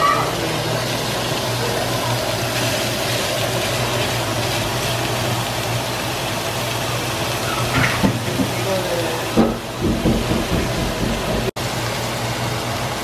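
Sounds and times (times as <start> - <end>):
sausage sizzling in a frying pan: 0.0 - 13.0.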